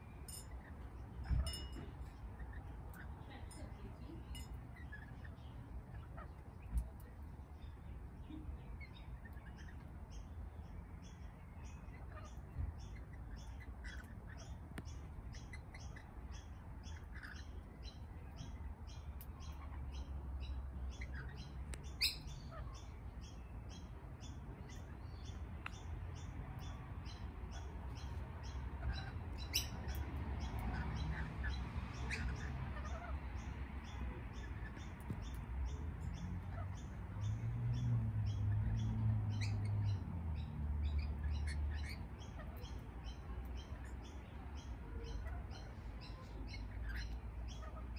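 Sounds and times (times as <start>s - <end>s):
lorikeets chirping: 8.7s - 47.9s
lorikeets squawking: 26.6s - 37.4s.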